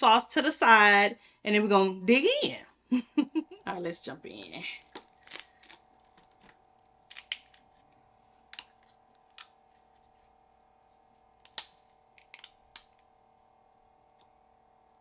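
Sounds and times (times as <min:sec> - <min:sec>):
crab shells cracking: 0:04.8 - 0:07.9, 0:11.3 - 0:13.0.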